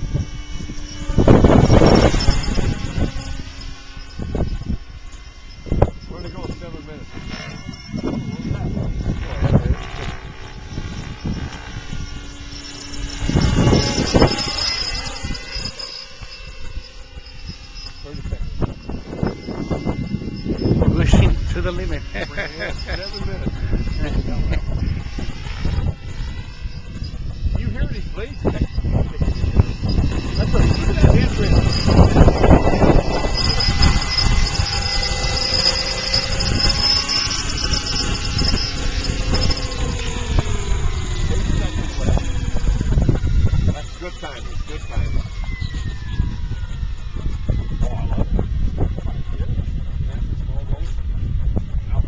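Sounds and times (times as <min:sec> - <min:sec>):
rc helicopter whining: 0:00.0 - 0:52.0
rotor blades rumbling: 0:00.0 - 0:52.0
wind buffeting microphone: 0:00.0 - 0:52.0.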